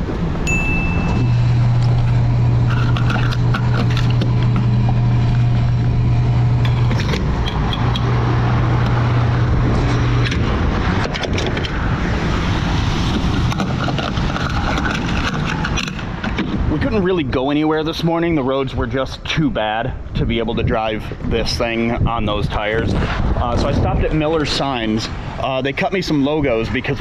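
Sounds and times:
fuel pump humming: 0:00.4 - 0:16.7.

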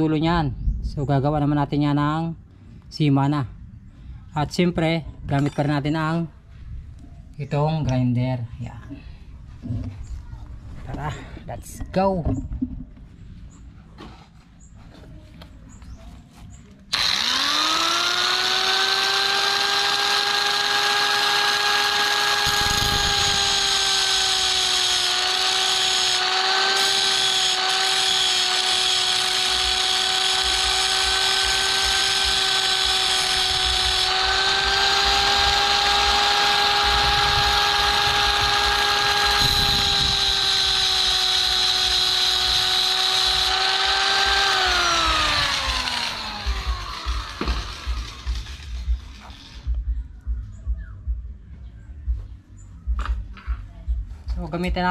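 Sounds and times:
angle grinder cutting metal: 0:16.9 - 0:49.7.

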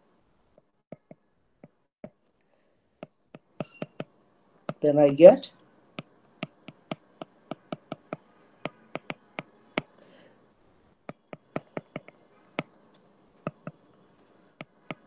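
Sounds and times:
stylus tapping on glass screen: 0:00.6 - 0:02.2, 0:03.0 - 0:04.8, 0:06.0 - 0:09.9, 0:11.1 - 0:12.7, 0:13.4 - 0:13.8.

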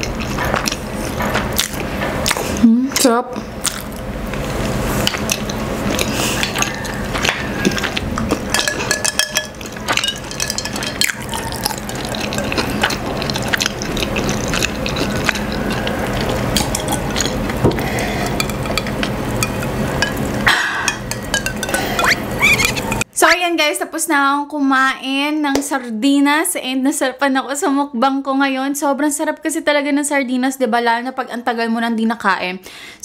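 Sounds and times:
person chewing: 0:00.0 - 0:02.7, 0:03.6 - 0:23.0
wet mouth noises: 0:11.0 - 0:19.2, 0:21.7 - 0:23.0.

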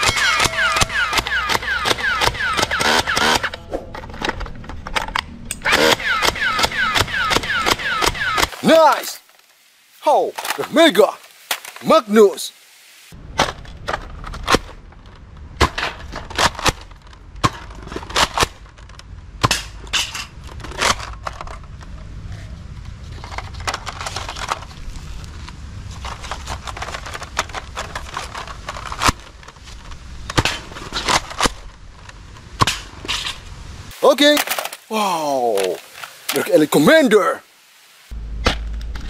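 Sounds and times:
toy blaster plastic clicks: 0:00.0 - 0:03.6, 0:05.5 - 0:08.5.

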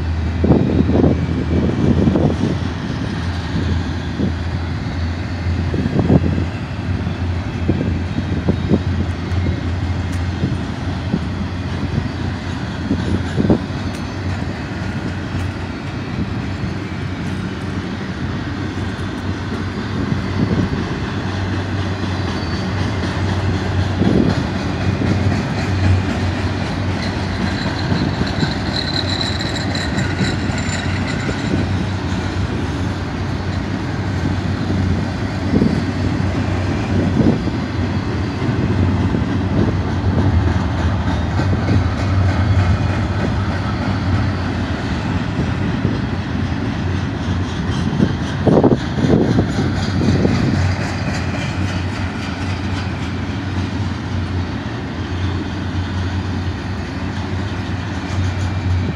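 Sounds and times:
train wheels rumbling on rail: 0:00.0 - 0:58.9
faint high squeal: 0:27.5 - 0:31.7.

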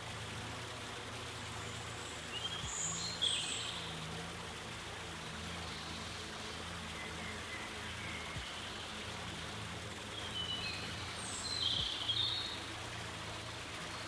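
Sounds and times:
outdoor background hiss: 0:00.0 - 0:14.0
small bird chirping: 0:10.1 - 0:12.7.

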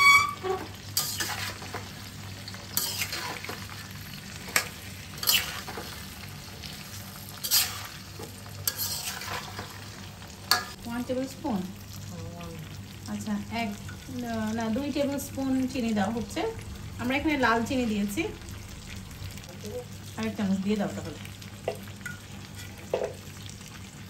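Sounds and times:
metal spatula scraping a pan: 0:00.0 - 0:01.9, 0:02.7 - 0:03.8, 0:04.4 - 0:10.8
oil sizzling: 0:00.0 - 0:24.0.

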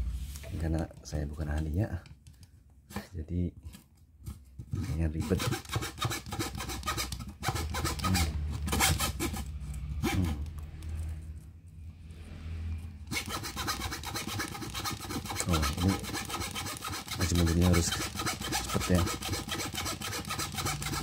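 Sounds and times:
hand saw sawing plywood: 0:04.8 - 0:10.5, 0:13.1 - 0:21.0.

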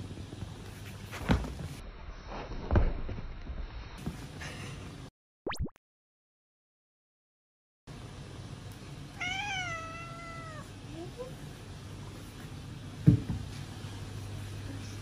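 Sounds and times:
kitten meowing: 0:09.2 - 0:10.7.

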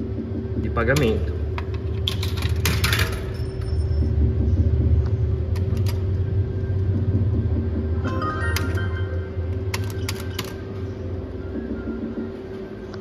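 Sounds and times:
steady low rumble: 0:03.8 - 0:10.0
coins clinking into slot machine: 0:08.1 - 0:09.1.

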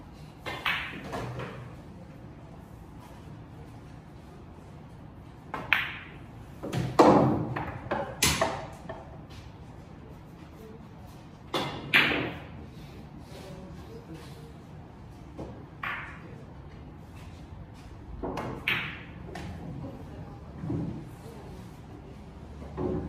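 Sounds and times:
billiard balls clacking: 0:00.4 - 0:01.7, 0:05.5 - 0:09.2.

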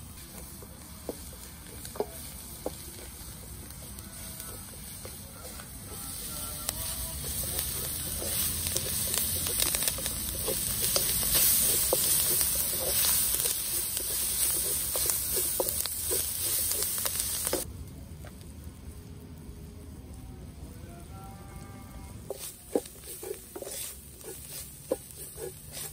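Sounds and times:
food sizzling in hot oil: 0:00.0 - 0:17.7, 0:22.3 - 0:25.9.

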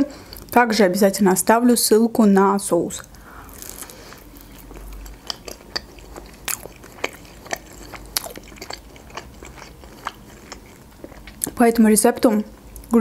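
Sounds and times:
crisp chewing: 0:03.0 - 0:11.6.

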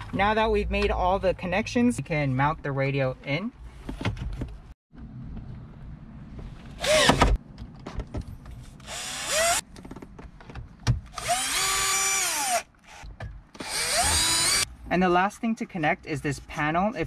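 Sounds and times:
cordless drill driving screws: 0:06.8 - 0:07.2, 0:08.8 - 0:09.6, 0:11.1 - 0:13.0, 0:13.6 - 0:14.7.

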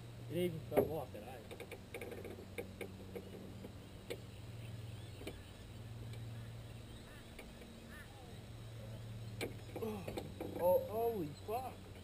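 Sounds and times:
low steady hum: 0:00.0 - 0:12.0
line clicking and tapping on boat: 0:00.7 - 0:06.3, 0:07.0 - 0:07.9, 0:09.3 - 0:12.0.

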